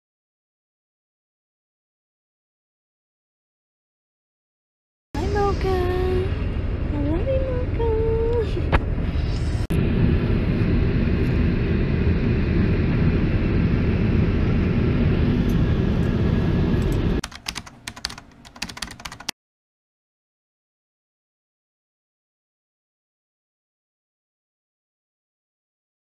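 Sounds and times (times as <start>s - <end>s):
car road and engine rumble: 5.2s - 17.2s
rapid sharp clicks: 16.8s - 19.3s.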